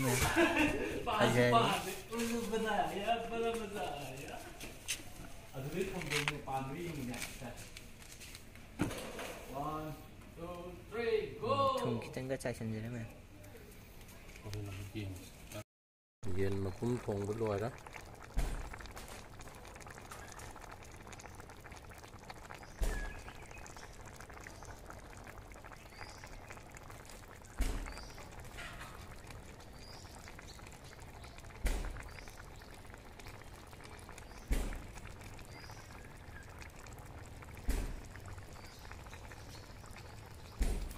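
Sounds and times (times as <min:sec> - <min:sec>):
curry bubbling in a pan: 0:00.0 - 0:08.8, 0:16.3 - 0:40.9
low thump: 0:40.6 - 0:40.9.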